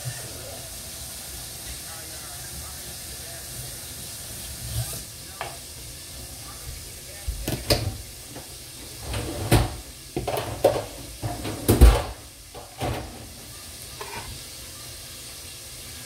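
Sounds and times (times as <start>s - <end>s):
dishes and utensils clattering: 7.5s - 14.4s.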